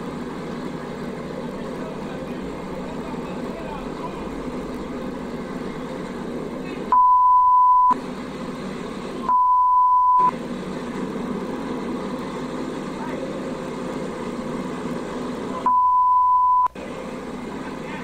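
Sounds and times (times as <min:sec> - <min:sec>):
light aircraft engine drone: 0:00.0 - 0:18.0
high pure bleep: 0:06.9 - 0:08.0, 0:09.3 - 0:10.4, 0:15.7 - 0:16.7.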